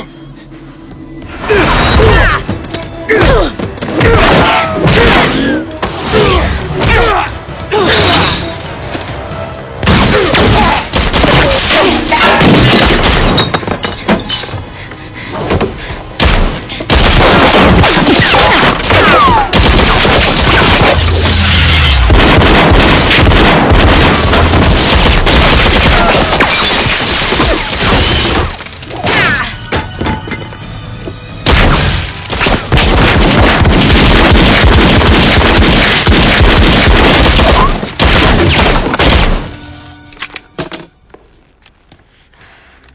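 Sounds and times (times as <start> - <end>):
dramatic score music: 0.0 - 26.6, 27.3 - 42.9
punches thuds and booms: 22.1 - 26.5.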